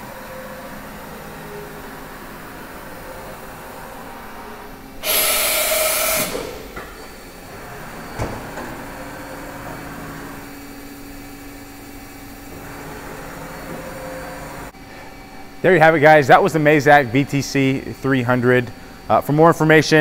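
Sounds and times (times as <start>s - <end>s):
machine humming: 0.0s - 20.0s
machine hiss: 5.0s - 7.4s.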